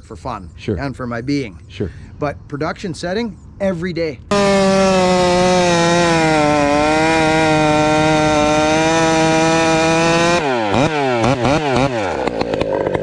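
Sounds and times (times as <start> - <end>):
chainsaw cutting tree trunk: 4.3 - 13.0
chainsaw revving: 4.3 - 13.0.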